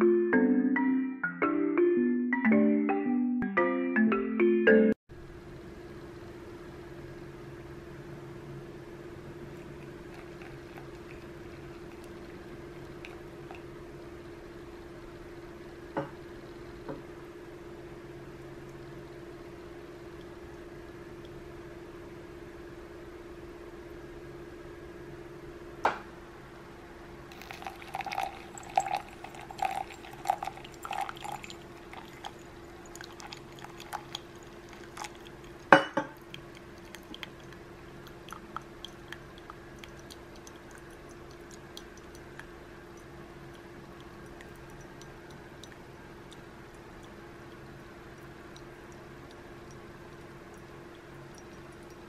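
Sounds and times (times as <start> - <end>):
water pouring and gurgling: 9.5 - 13.7, 27.3 - 42.5
coffee dripping into mug: 9.5 - 14.9, 27.3 - 52.0.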